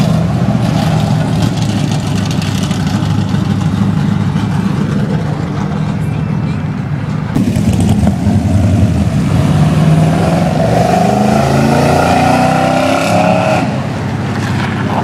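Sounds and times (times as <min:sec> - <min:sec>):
cars driving past: 0:00.0 - 0:15.0
car engine accelerating hard: 0:07.3 - 0:15.0.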